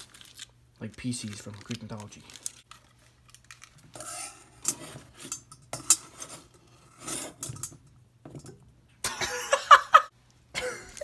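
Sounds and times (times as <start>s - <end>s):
knife scraping: 4.0s - 7.7s.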